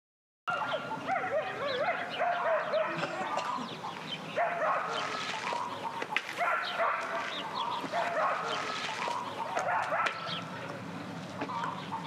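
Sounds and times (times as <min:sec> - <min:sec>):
dog yapping: 0:00.5 - 0:03.7, 0:04.4 - 0:10.4
birds chirping: 0:00.5 - 0:12.0.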